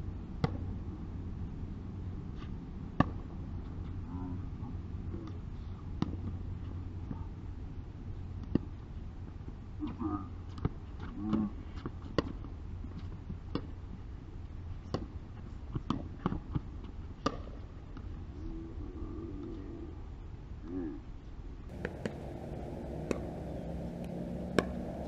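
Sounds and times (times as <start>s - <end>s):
paddles popping against ball: 21.7s - 25.0s.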